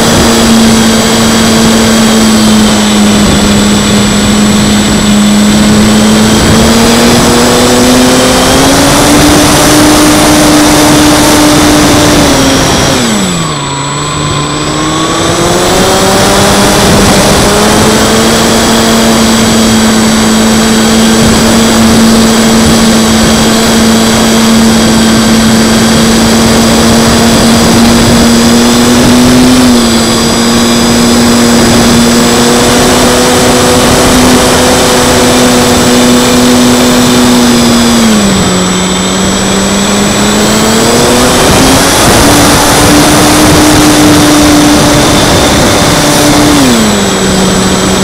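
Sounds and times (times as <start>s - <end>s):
electric motor and propeller whining: 0.0s - 48.0s
wind rush: 0.0s - 48.0s.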